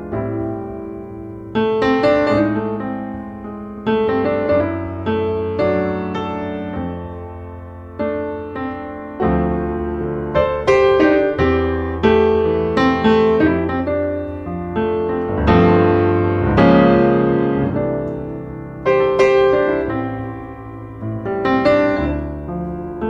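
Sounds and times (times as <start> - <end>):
piano music: 0.0 - 23.0.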